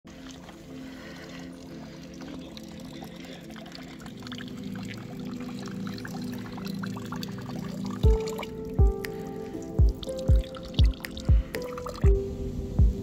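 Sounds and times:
water trickling and splashing: 0.1s - 12.2s.

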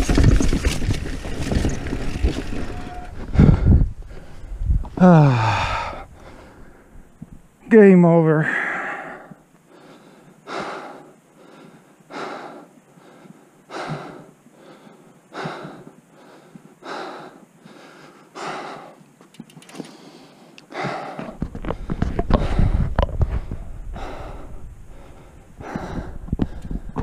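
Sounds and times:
person breathing hard and gasping: 3.3s - 6.9s, 19.8s - 27.0s.

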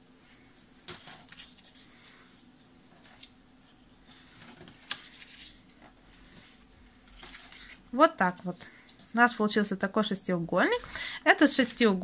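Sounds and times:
cardboard rustling and creasing: 2.6s - 9.1s.

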